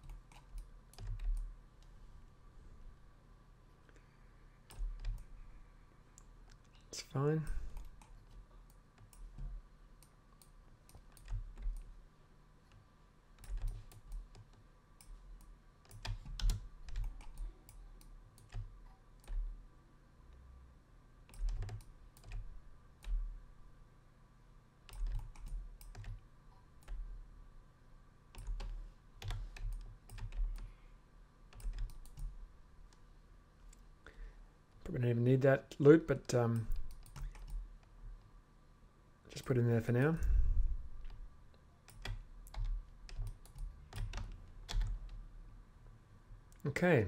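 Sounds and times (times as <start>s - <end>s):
keyboard and mouse clicking: 0.0s - 1.9s, 4.7s - 5.3s, 6.2s - 11.9s, 13.4s - 19.5s, 21.3s - 23.3s, 24.9s - 26.2s, 28.3s - 30.7s, 31.5s - 33.0s, 36.5s - 37.9s, 41.8s - 45.2s
faint steady hum: 0.0s - 47.0s.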